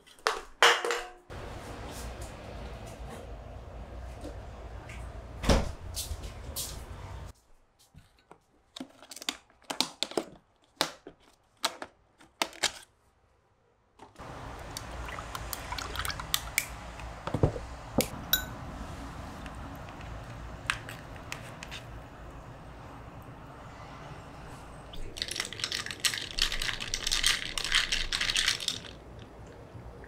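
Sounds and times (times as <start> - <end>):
room hum: 1.3 - 7.5
metal spoon clinking in bowl: 18.3 - 18.6
plastic container clicking and crackling: 25.2 - 29.0.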